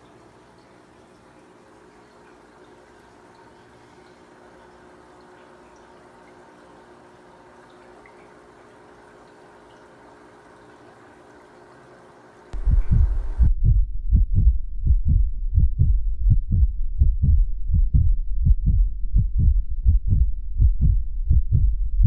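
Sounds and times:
faint background hum: 0:00.0 - 0:22.0
deep thumping beat: 0:12.6 - 0:22.0.

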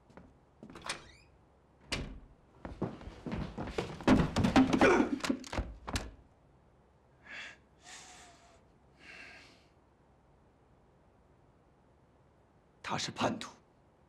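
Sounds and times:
knocks and thuds on wooden door: 0:04.0 - 0:06.2
heavy breaths: 0:07.2 - 0:09.8.

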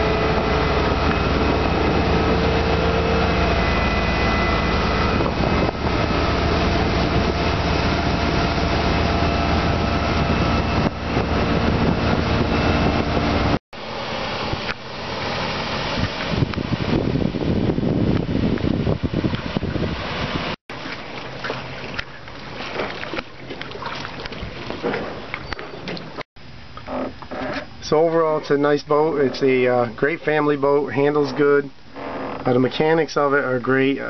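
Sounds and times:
wind buffeting microphone: 0:00.0 - 0:13.6, 0:15.7 - 0:20.6, 0:21.6 - 0:26.2
rushing wind and water: 0:00.0 - 0:26.2
boat engine running: 0:00.0 - 0:34.0.

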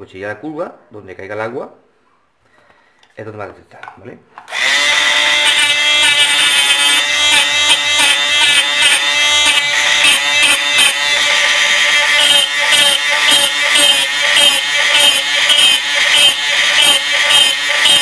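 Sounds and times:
orbital sander whining: 0:04.5 - 0:18.0.

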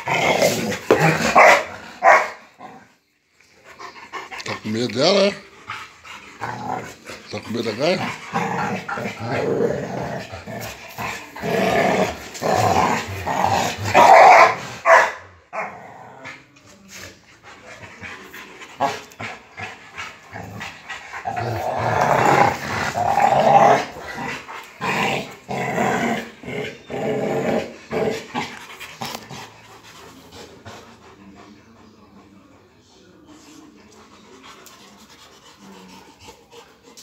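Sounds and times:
dogs growling: 0:00.0 - 0:37.0.

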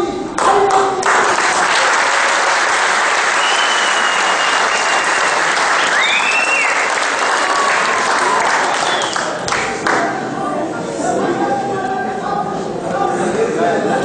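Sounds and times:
audience applause: 0:00.4 - 0:10.2.

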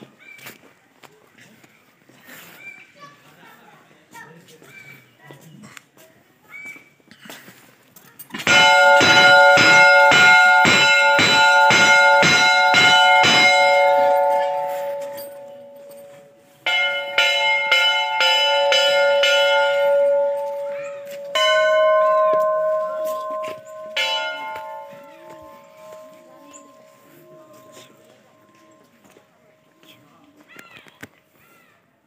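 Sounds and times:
brass temple bells ringing: 0:08.4 - 0:29.9.

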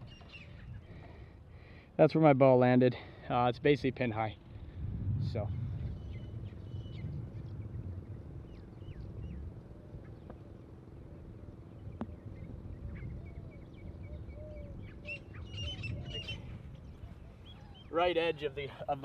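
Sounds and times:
birds chirping: 0:00.0 - 0:02.2, 0:03.0 - 0:04.8, 0:05.4 - 0:19.0
low background rumble: 0:04.3 - 0:17.5.

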